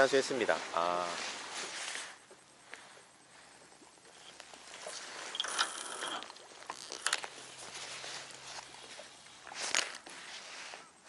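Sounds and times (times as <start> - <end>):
fishing rod rustling: 0.0 - 11.0
reel clicks: 4.0 - 10.2.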